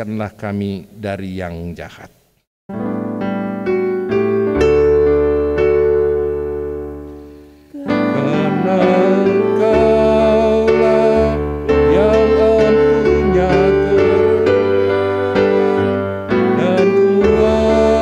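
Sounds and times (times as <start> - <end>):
church keyboard chords: 2.7 - 18.0
people singing a hymn: 7.8 - 18.0.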